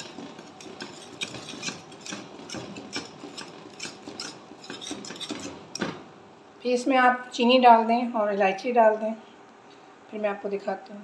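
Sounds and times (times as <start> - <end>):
wire whisk scraping a metal pot: 0.0 - 5.8.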